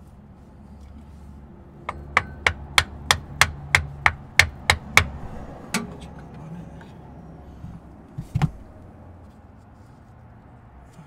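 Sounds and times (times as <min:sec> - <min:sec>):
hammer tapping on seal: 0:01.9 - 0:05.2.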